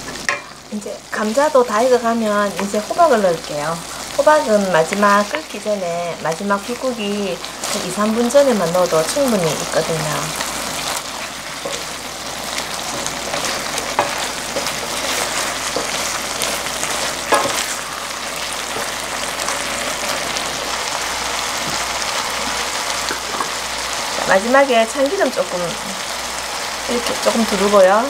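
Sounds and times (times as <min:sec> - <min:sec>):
food sizzling in a pan: 0:00.0 - 0:28.0.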